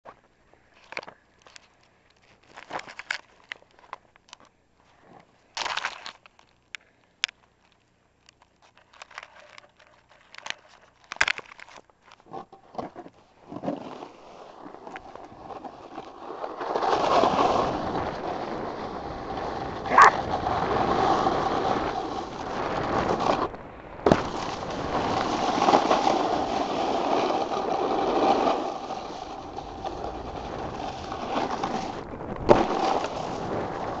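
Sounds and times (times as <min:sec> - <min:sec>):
snowboard scraping over snow: 0:12.9 - 0:34.0.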